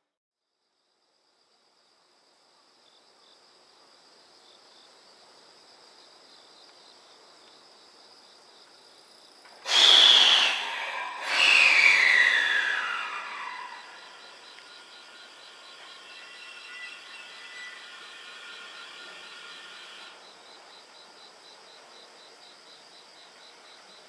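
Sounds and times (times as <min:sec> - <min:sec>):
insects trilling: 0:07.6 - 0:24.0
train horn blasts: 0:14.7 - 0:20.1.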